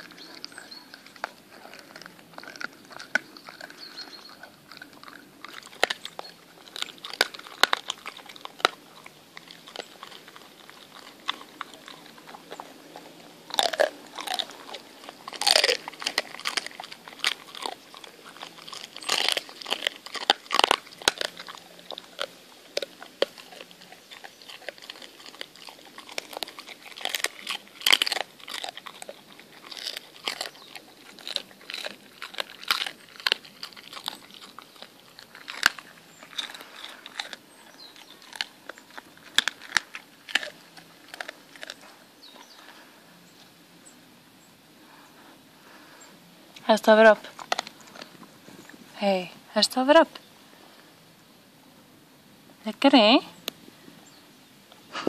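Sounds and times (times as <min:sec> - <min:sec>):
dog chewing and crunching bone: 0:00.0 - 0:43.0, 0:46.6 - 0:50.3.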